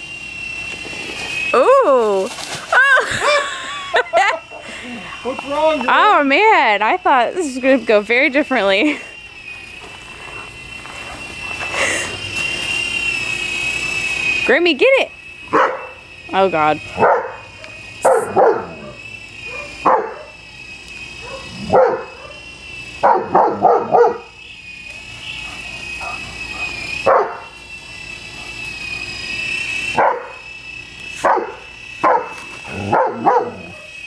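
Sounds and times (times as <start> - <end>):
toy helicopter rotor whine: 0.0 - 34.0
dog barking: 15.5 - 16.0, 17.0 - 20.3, 21.2 - 22.4, 23.0 - 24.3, 26.0 - 27.4, 30.0 - 30.3, 31.2 - 33.9.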